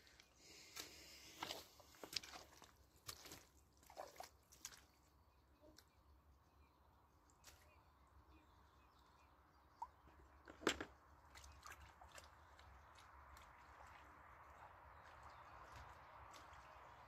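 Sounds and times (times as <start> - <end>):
plastic bucket set down on logs: 10.4 - 11.0.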